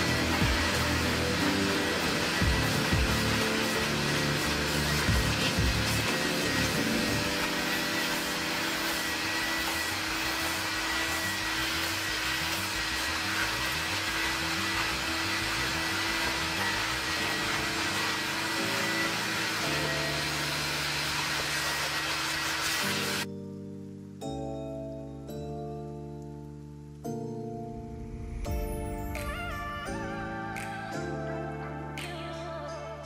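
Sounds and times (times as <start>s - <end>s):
background music with bass: 0.0s - 20.9s, 23.3s - 33.0s
vacuum motor whine: 0.0s - 23.3s.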